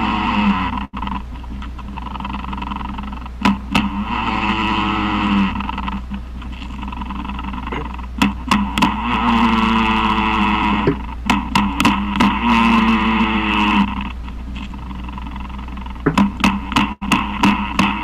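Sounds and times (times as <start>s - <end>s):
sharp taps: 10.8s - 12.3s, 16.0s - 17.9s.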